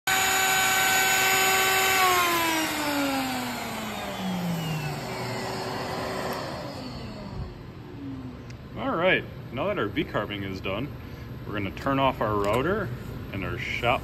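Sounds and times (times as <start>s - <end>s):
router whine spinning down: 0.0s - 8.5s
shop vac rushing: 0.1s - 7.8s.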